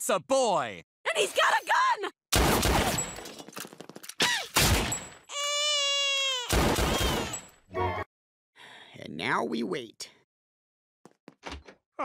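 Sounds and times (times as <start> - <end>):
rapid cartoon pistol fire: 2.3 - 3.1, 6.5 - 7.4
long high-pitched cry: 5.3 - 8.0.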